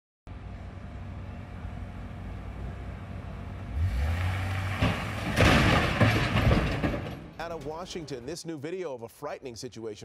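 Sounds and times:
truck engine revving: 0:00.7 - 0:08.2.

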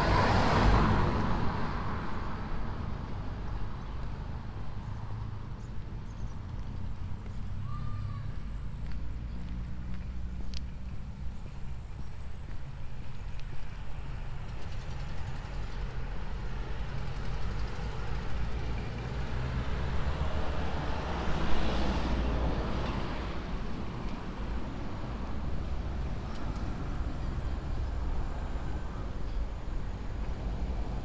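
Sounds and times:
vehicle passing by: 0:00.0 - 0:03.5, 0:14.8 - 0:31.0
low road rumble: 0:00.0 - 0:31.0.

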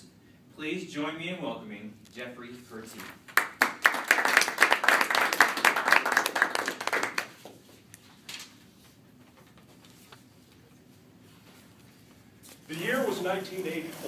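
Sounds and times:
audience applauding: 0:03.3 - 0:07.4.

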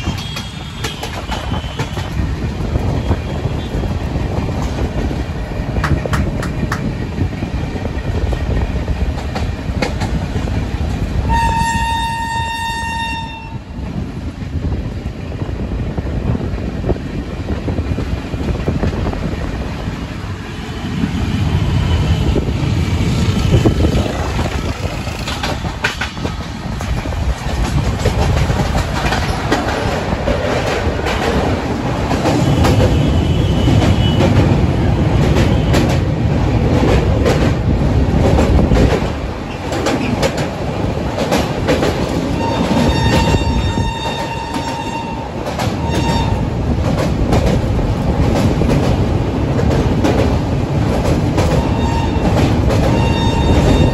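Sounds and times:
clatter over rail joints: 0:00.0 - 0:03.2, 0:03.9 - 0:11.2, 0:22.7 - 0:53.9
train wheels rumbling: 0:00.0 - 0:53.9
train horn: 0:11.2 - 0:13.8, 0:32.4 - 0:34.4, 0:42.3 - 0:46.5, 0:51.6 - 0:53.9.

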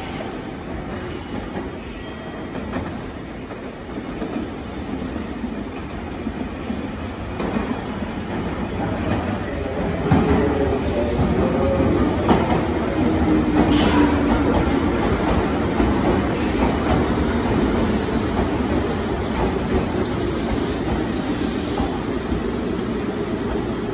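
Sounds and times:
train wheels rumbling over rails: 0:00.0 - 0:23.9
high brake squeal: 0:01.1 - 0:02.5, 0:20.4 - 0:23.9.

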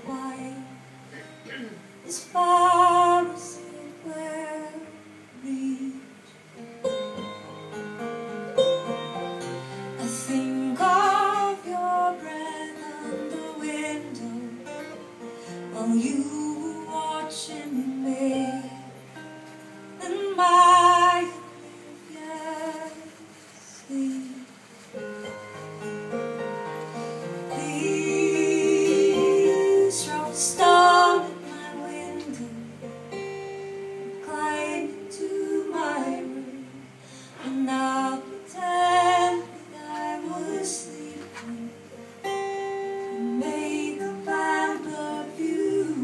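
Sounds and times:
woman singing: 0:00.0 - 0:01.0, 0:02.0 - 0:06.3, 0:09.9 - 0:19.0, 0:20.0 - 0:24.6, 0:27.5 - 0:32.9, 0:34.1 - 0:42.0, 0:43.1 - 0:46.0
acoustic guitar: 0:00.0 - 0:46.0.

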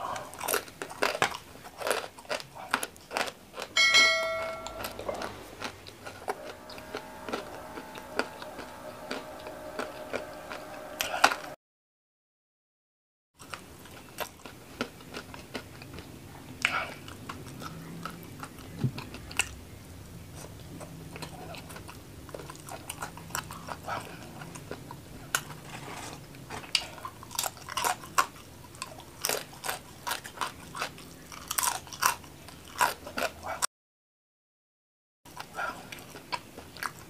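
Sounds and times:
person chewing crunchy food: 0:00.0 - 0:03.8, 0:13.4 - 0:19.6, 0:20.3 - 0:33.6, 0:35.3 - 0:37.0.

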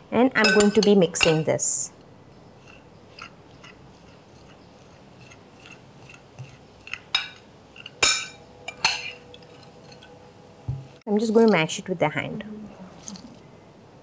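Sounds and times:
spoon stirring filling: 0:02.5 - 0:10.2.

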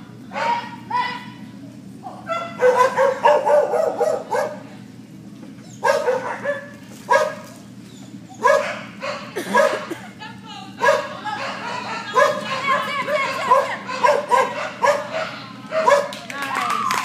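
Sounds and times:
steady low hum: 0:00.0 - 0:17.0
dog barking: 0:02.3 - 0:04.6, 0:05.8 - 0:07.5, 0:08.4 - 0:10.0, 0:10.8 - 0:16.2.

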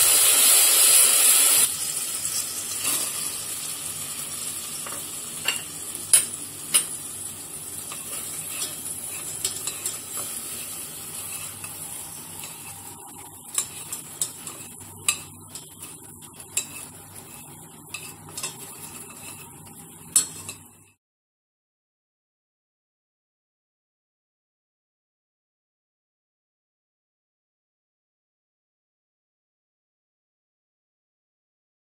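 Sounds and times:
bread sizzling in syrup: 0:00.0 - 0:21.0
chopsticks tapping metal pan: 0:04.8 - 0:07.0, 0:07.9 - 0:10.4, 0:13.4 - 0:20.7.

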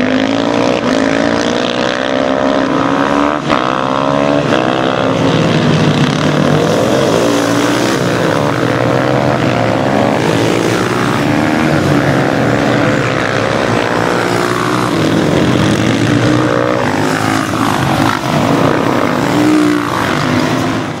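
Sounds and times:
motorcycles racing past: 0:00.0 - 0:21.0.

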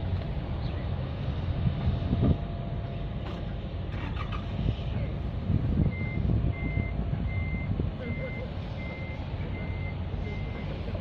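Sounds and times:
heavy vehicle rumbling: 0:00.0 - 0:11.0
reversing alarm beep: 0:05.9 - 0:10.6.

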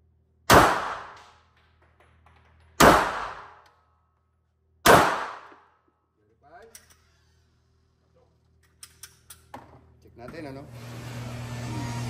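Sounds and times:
pistol shots with echo: 0:00.5 - 0:01.4, 0:02.8 - 0:03.6, 0:04.8 - 0:05.6.

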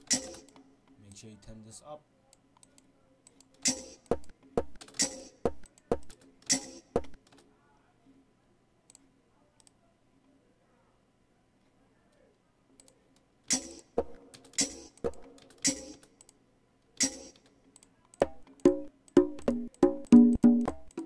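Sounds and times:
drum hits: 0:03.7 - 0:06.1, 0:07.0 - 0:07.2, 0:14.0 - 0:14.2, 0:18.2 - 0:21.0
conga hits: 0:03.7 - 0:07.2, 0:18.2 - 0:21.0.

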